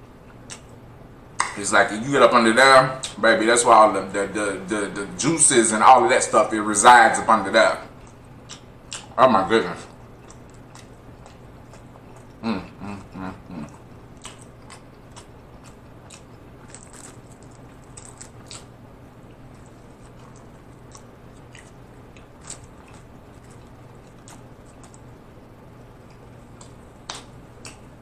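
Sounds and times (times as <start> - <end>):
short hummed sounds: 0.0 - 10.2, 10.8 - 14.1
wet chewing and mouth smacks: 0.3 - 0.8, 8.0 - 9.2, 9.9 - 12.4, 19.3 - 25.1, 26.0 - 27.9.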